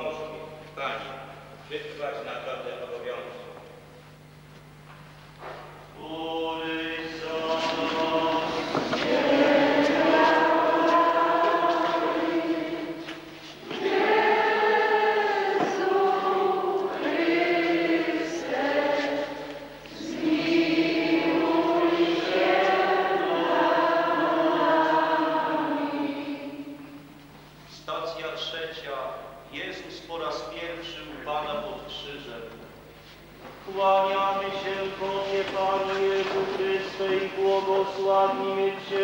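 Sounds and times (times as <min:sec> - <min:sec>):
congregation singing a hymn: 0:05.4 - 0:27.1, 0:33.5 - 0:39.0.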